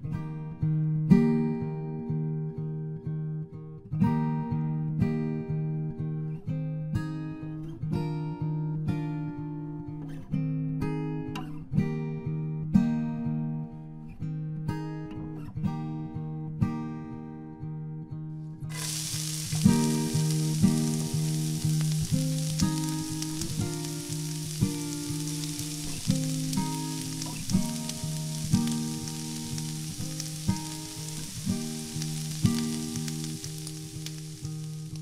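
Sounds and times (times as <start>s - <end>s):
acoustic guitar background music: 0.0s - 35.0s
fish sizzling in hot oil: 18.7s - 35.0s.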